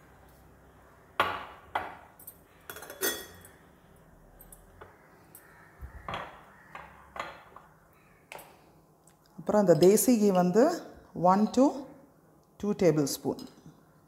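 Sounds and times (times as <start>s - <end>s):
spoon and jar clinking: 2.1s - 3.6s.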